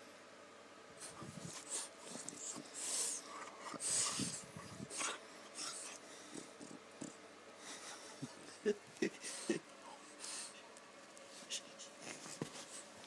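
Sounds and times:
dog breathy huffs: 0:01.0 - 0:06.8
dog snorting and breathing: 0:01.0 - 0:08.5.

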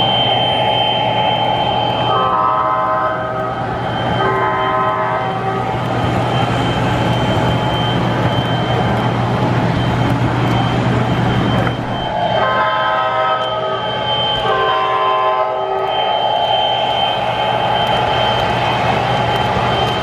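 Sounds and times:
model train rumbling on track: 0:00.0 - 0:20.0
train chord horn: 0:01.8 - 0:05.9, 0:12.2 - 0:19.0.

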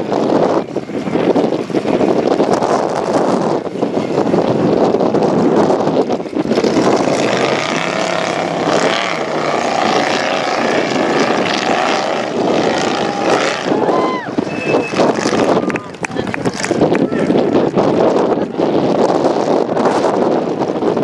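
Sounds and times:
wind buffeting microphone: 0:00.0 - 0:21.0
buggy engine revving: 0:05.1 - 0:20.2.

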